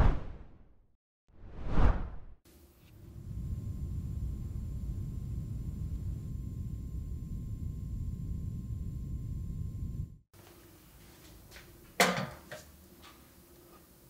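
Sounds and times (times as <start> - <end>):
low rumbling noise: 2.9 - 10.2.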